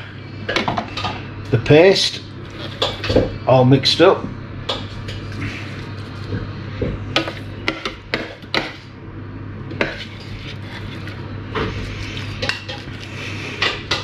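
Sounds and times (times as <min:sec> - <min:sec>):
metal spoon scraping plastic bowl: 0:09.8 - 0:11.2.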